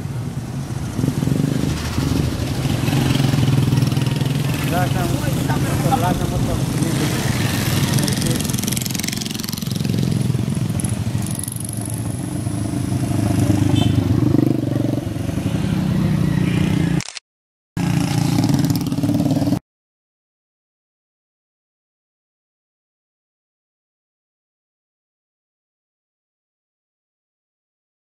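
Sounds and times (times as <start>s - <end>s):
small motorcycle engines passing: 0.0s - 17.0s, 17.8s - 19.6s.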